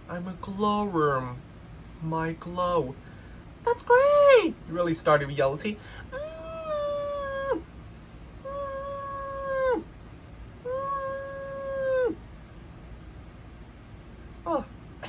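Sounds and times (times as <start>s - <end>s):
animated character wailing: 6.1s - 7.6s, 8.4s - 9.9s, 10.6s - 12.2s.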